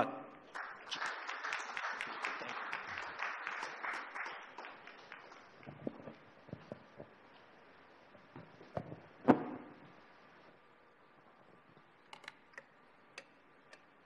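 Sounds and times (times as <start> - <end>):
audience applause: 0.5 - 5.9.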